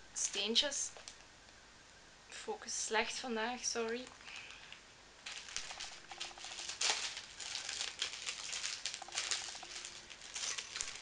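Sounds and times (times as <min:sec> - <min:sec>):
plastic packaging crinkling: 0:03.9 - 0:11.0.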